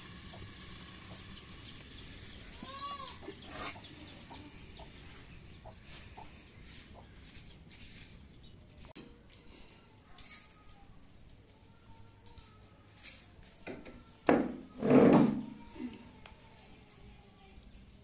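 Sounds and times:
chicken clucking: 3.2s - 7.1s.

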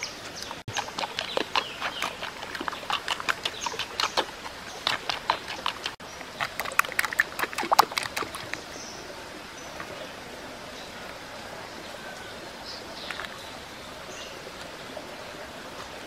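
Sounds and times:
wooden spoon scraping clay bowl: 0.5s - 8.6s.

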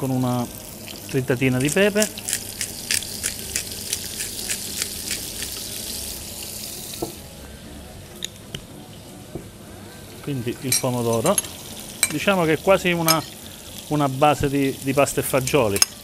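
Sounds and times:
vegetables sizzling in oil: 0.1s - 7.3s, 10.0s - 16.0s
oil crackling: 0.8s - 6.7s.

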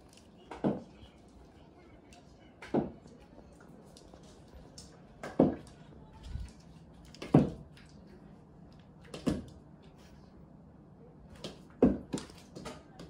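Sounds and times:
ball bouncing on wooden floor: 5.2s - 5.7s, 7.2s - 7.6s, 11.4s - 12.8s.

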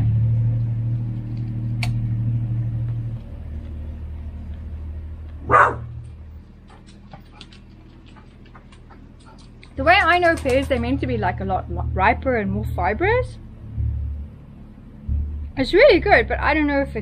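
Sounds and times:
low steady hum: 0.0s - 17.0s
dog barking: 5.4s - 6.0s.

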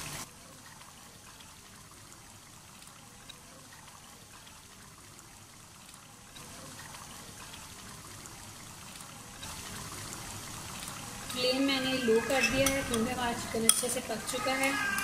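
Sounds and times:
sauce sizzling and bubbling: 0.0s - 15.0s.

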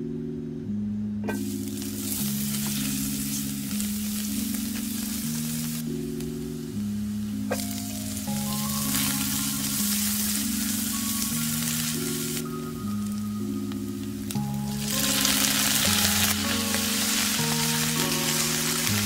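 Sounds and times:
soft background music: 0.0s - 19.0s
garlic sizzling in hot oil: 1.4s - 5.9s, 7.5s - 13.2s, 14.3s - 19.0s.

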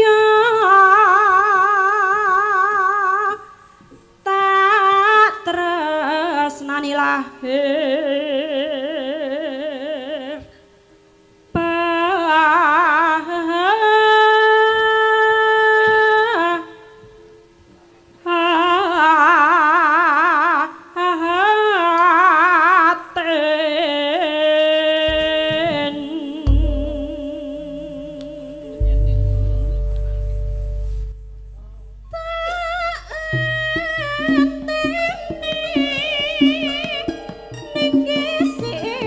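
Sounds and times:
woman singing with vibrato: 0.0s - 3.6s, 4.2s - 10.5s, 11.6s - 17.1s, 18.2s - 30.2s, 32.1s - 39.0s
held instrument tones: 26.4s - 39.0s
deep booming gong strokes: 26.5s - 27.4s, 28.8s - 34.2s.

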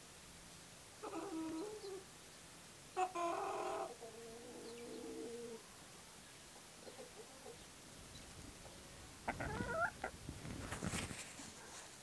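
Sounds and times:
chickens calling: 1.0s - 2.1s, 2.9s - 5.7s, 6.5s - 10.2s.

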